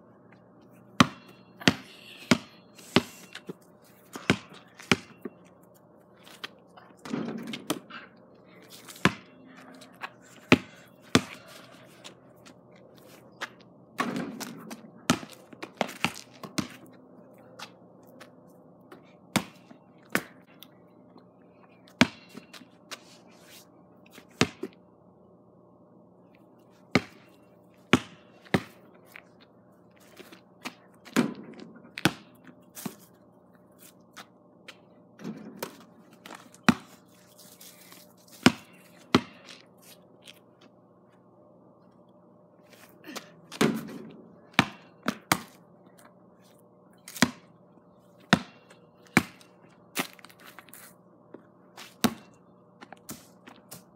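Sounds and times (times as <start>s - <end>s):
basketball bouncing on hard ground: 0.9s - 5.4s, 8.9s - 9.4s, 10.0s - 11.7s, 13.4s - 17.0s, 18.9s - 20.5s, 21.9s - 22.6s, 24.3s - 24.8s, 26.9s - 28.9s, 30.2s - 33.2s, 34.2s - 37.1s, 38.3s - 39.7s, 43.2s - 45.6s, 47.1s - 47.6s, 48.2s - 50.4s, 51.4s - 53.9s
ball striking backboard and rim: 1.0s - 3.2s, 4.1s - 5.4s, 14.0s - 15.3s, 43.6s - 45.5s, 48.3s - 49.4s.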